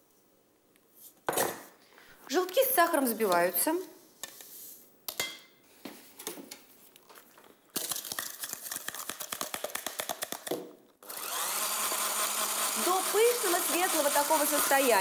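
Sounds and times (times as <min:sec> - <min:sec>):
electric hand blender running: 0:11.0 - 0:15.0.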